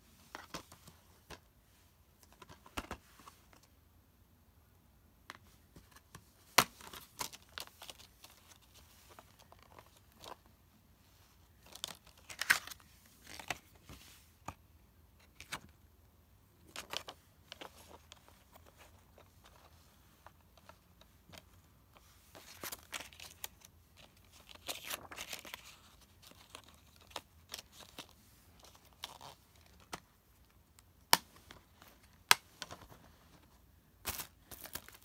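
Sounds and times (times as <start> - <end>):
crinkly plastic rustles: 6.7 - 10.5, 16.6 - 30.5, 31.4 - 35.0.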